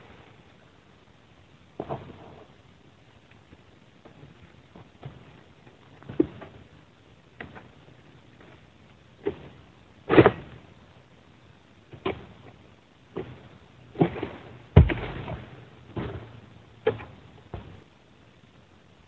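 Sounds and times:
sickle chopping frond stalks: 9.2 - 10.6, 13.1 - 17.8.

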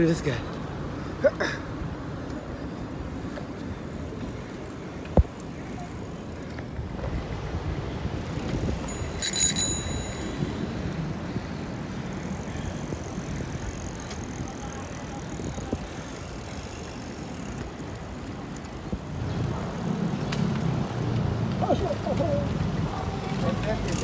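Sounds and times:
wind: 0.0 - 24.0
bicycle rolling noise: 2.1 - 24.0
bicycle bell ringing: 8.8 - 11.2.

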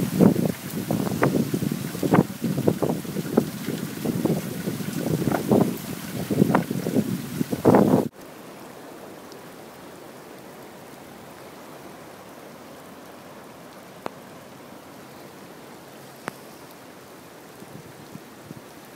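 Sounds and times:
falling rain: 0.0 - 18.9
floodwater rushing down a ditch: 0.0 - 18.9.

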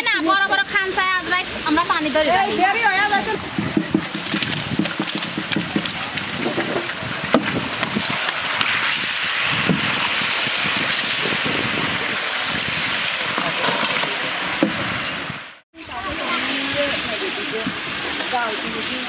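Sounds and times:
sharp knocks: 3.6 - 7.6.

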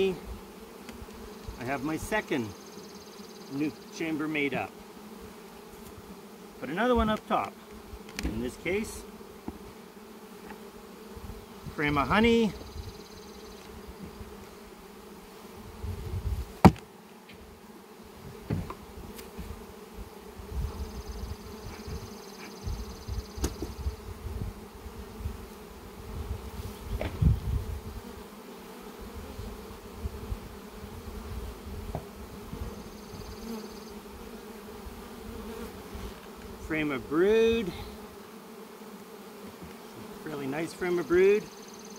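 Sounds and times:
bees buzzing: 0.0 - 41.9
wooden hive frames knocking: 9.4 - 9.8, 16.6 - 17.4, 18.3 - 19.5, 22.5 - 24.0, 31.8 - 32.2.

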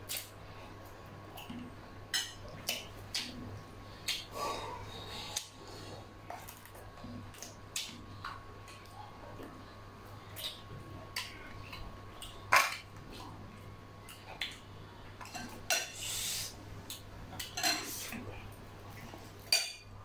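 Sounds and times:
steady low hum: 0.0 - 20.0
cutlery clinking on plates: 17.4 - 17.9, 19.4 - 19.9.

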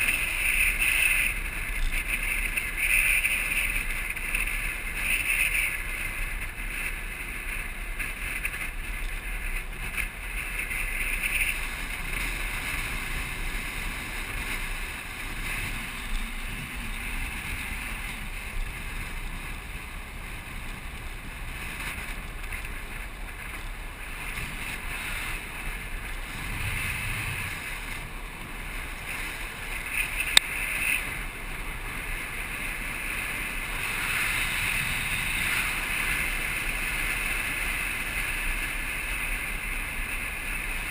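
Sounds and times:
wind rushing on microphone: 0.0 - 40.9.

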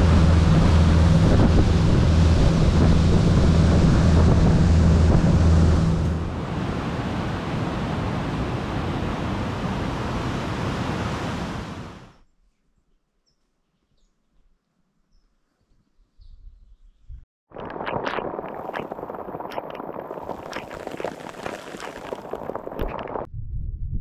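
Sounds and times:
motorboat engine: 0.0 - 11.8
rush of wind and water: 0.0 - 12.1, 17.5 - 23.3.

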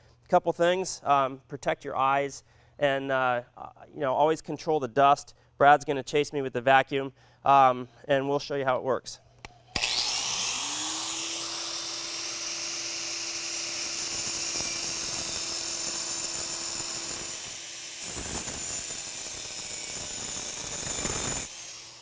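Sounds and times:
angle grinder cutting concrete: 9.7 - 22.0.

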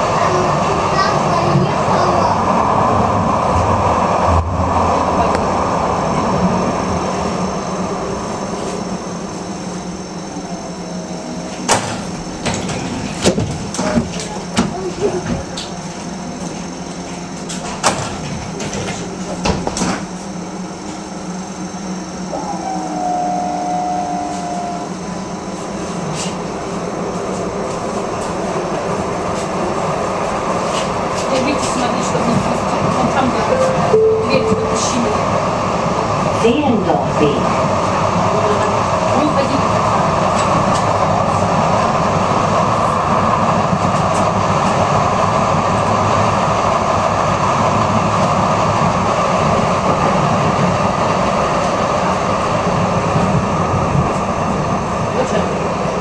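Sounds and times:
train wheels rumbling: 0.0 - 56.0
steady whine: 3.6 - 28.4.

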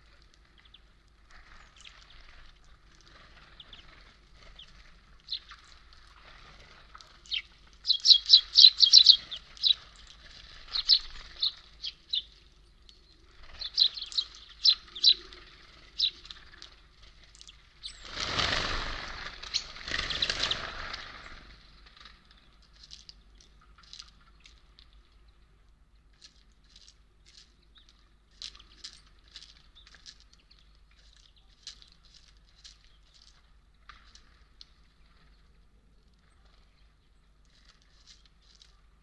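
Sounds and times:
songbirds chirping: 0.0 - 39.0
wing flaps: 13.3 - 23.1.

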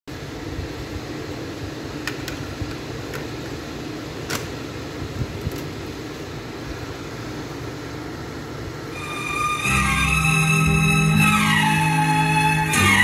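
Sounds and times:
tape hiss: 0.1 - 13.0
low hum: 7.1 - 13.0.

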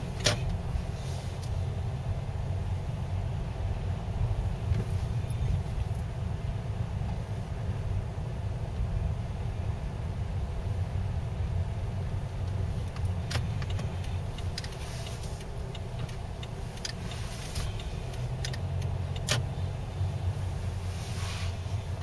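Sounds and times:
car rumbling over slushy street: 0.0 - 22.0.

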